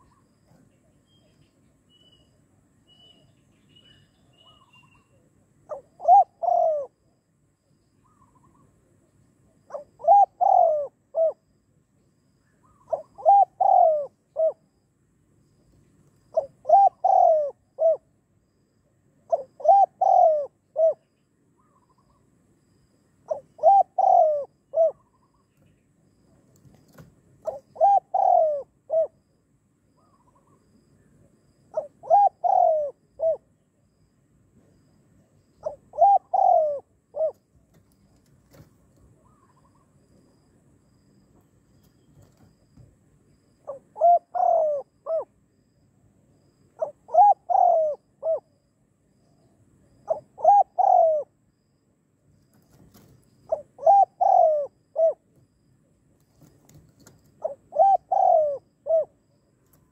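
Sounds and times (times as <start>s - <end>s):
dove cooing: 4.4s - 7.1s, 9.7s - 11.4s, 12.6s - 14.7s, 16.3s - 18.2s, 19.3s - 22.1s, 23.3s - 25.4s, 26.6s - 29.3s, 31.7s - 33.5s, 35.6s - 37.9s, 38.5s - 39.9s, 43.6s - 45.4s, 46.8s - 48.6s, 50.0s - 51.4s, 52.7s - 55.3s, 56.4s - 59.3s.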